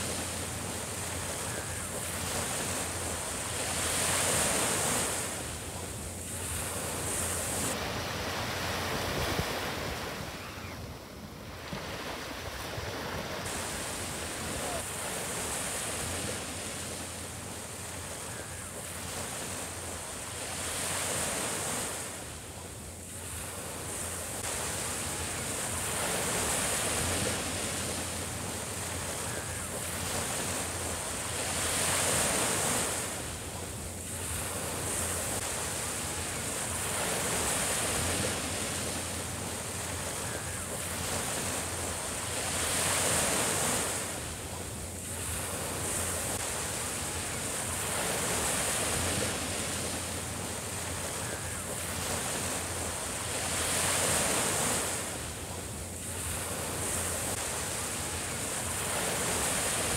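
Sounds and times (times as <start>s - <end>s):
small waves breaking on sand: 0.0s - 59.9s.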